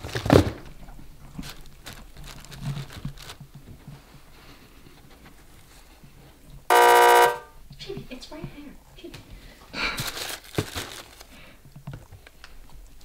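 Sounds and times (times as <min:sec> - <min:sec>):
tissue paper rustling: 0:01.3 - 0:04.1, 0:10.0 - 0:11.4.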